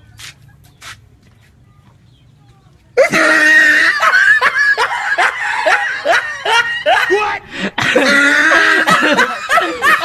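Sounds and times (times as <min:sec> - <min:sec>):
person screaming loudly: 0:03.0 - 0:04.1.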